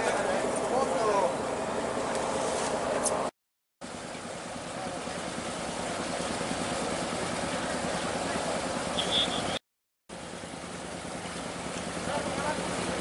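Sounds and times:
boat engine idling: 0:00.0 - 0:13.0
short high beep: 0:09.0 - 0:09.6.

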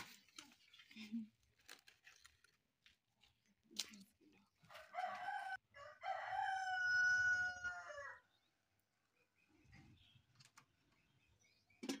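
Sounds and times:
rooster crowing: 0:04.9 - 0:08.3.

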